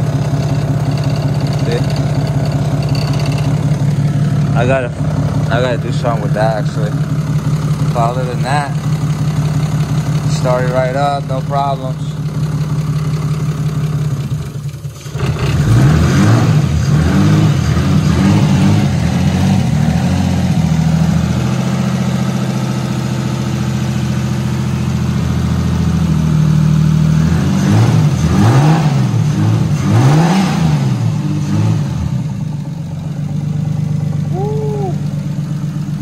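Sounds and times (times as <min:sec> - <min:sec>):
engine throttle blips: 0:00.0 - 0:23.1
car engine idling: 0:00.0 - 0:36.0.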